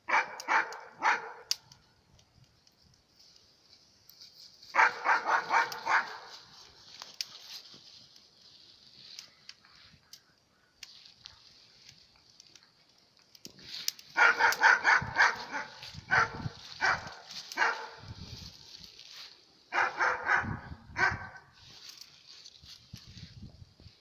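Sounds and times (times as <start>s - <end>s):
small dog barking: 0.1s - 1.5s, 4.7s - 6.3s, 14.2s - 18.1s, 19.7s - 21.5s.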